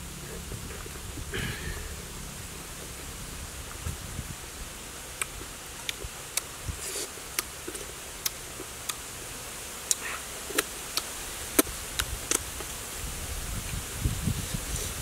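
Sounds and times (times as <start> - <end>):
steady background hiss: 0.0 - 15.0
person chewing with wet clicks: 5.2 - 9.0, 9.9 - 12.7.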